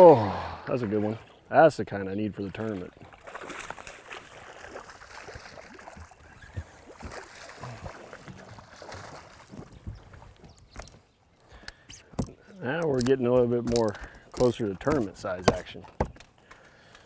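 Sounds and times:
fish splashing at water surface: 3.0 - 9.8.

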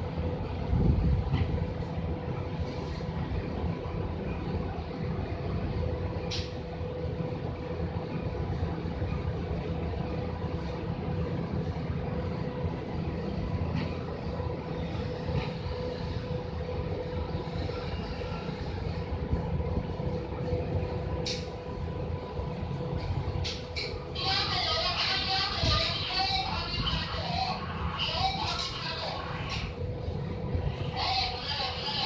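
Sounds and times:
steady hum: 0.0 - 32.0
wind rumbling on microphone: 0.1 - 4.2, 25.1 - 32.0.

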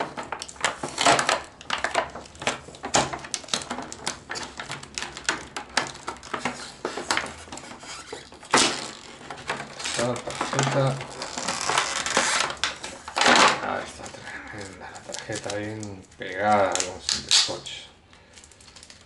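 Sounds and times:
plastic packaging crackling: 0.0 - 19.0
taped cardboard pulled free: 5.9 - 12.7, 16.6 - 17.6.

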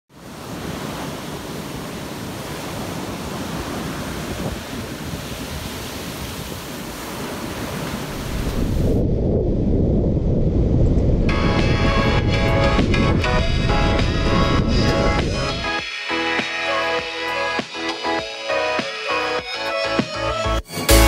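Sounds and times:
ocean surf breaking: 0.1 - 9.2
wind buffeting microphone: 0.4 - 15.7
low rumble: 8.2 - 13.0.

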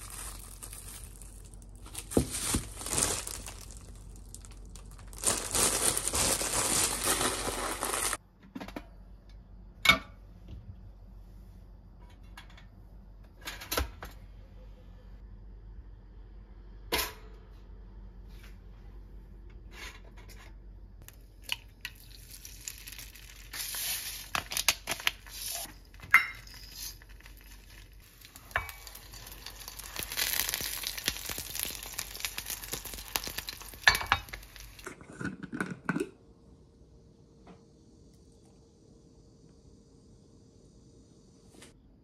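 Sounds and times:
egg sizzling in a frying pan: 21.9 - 34.8.

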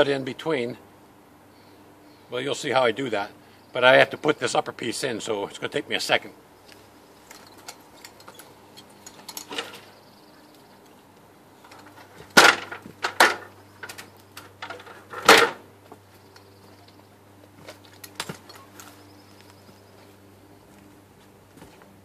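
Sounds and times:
stepladder knocking down: 11.7 - 13.5, 14.6 - 15.6.

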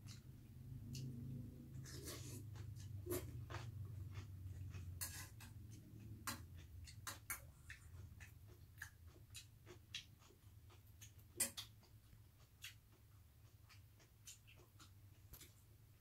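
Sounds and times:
low steady hum: 0.0 - 16.0
metal spoon scraping steel bowl: 1.7 - 3.3, 4.8 - 5.6.

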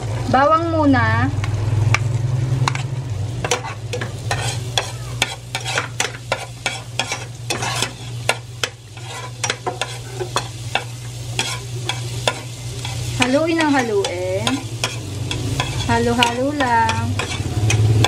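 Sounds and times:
garlic sizzling in a pan: 0.0 - 18.0
spatula scraping and tapping a pan: 2.0 - 18.0.

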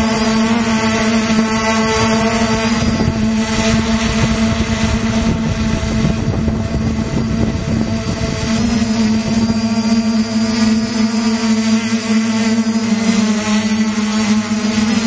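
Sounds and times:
wind buffeting microphone: 0.0 - 10.2
drone propellers humming: 0.0 - 15.0.

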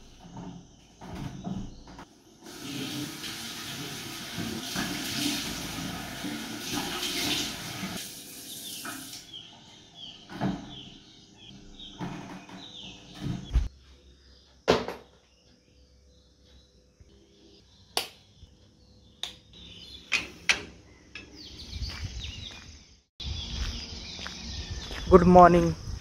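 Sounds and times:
tap running into basin: 2.5 - 9.2.

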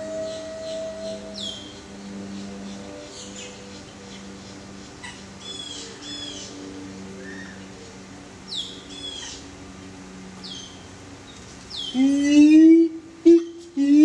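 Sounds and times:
ape hooting call: 0.0 - 3.2, 11.9 - 14.0
small birds chirping: 0.2 - 12.1.

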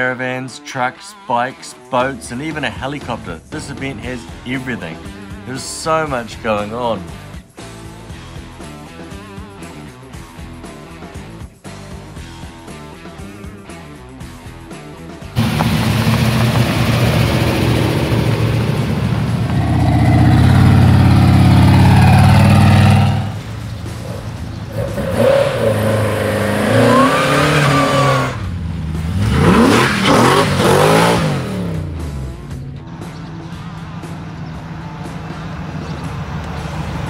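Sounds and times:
cars accelerating and revving: 15.4 - 37.0
loud steady engine note: 15.4 - 37.0.

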